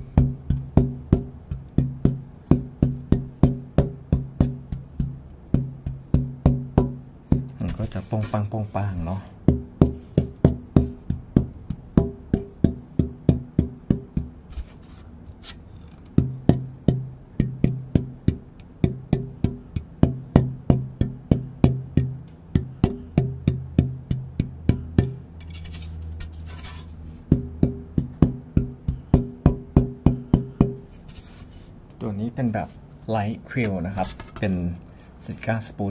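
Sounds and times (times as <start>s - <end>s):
taps on wooden guitar soundboard: 0.0s - 8.0s, 9.4s - 14.5s, 16.0s - 25.6s, 26.6s - 30.9s.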